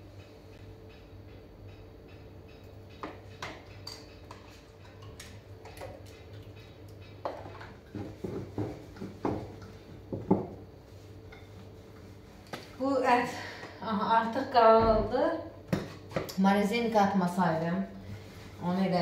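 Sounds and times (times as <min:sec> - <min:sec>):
steady low hum: 0:00.0 - 0:19.0
kitchen utensils knocking on counter: 0:10.1 - 0:10.6.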